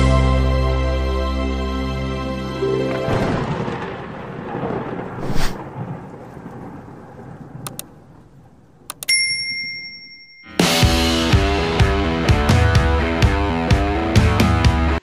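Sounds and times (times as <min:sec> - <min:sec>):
noisy whoosh: 0:05.2 - 0:05.6
mouse clicks: 0:07.7 - 0:07.9, 0:08.9 - 0:09.1
bright bell ding: 0:09.0 - 0:10.8.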